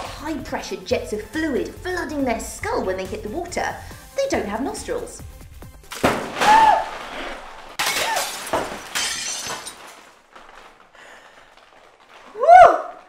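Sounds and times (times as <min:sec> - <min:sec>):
water splashing against helmet: 0:05.8 - 0:08.9.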